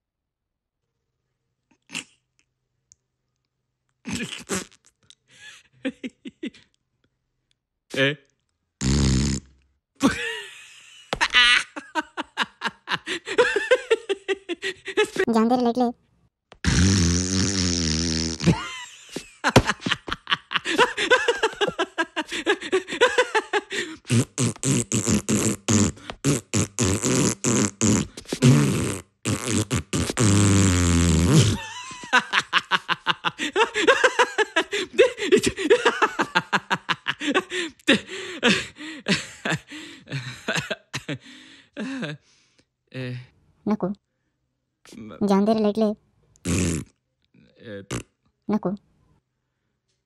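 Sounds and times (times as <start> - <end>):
cartoon voice blowing raspberries: 1.9 - 2.2, 4.1 - 4.9, 8.8 - 9.5, 15.1 - 16.0, 16.6 - 18.6, 24.0 - 31.6, 45.2 - 46.9.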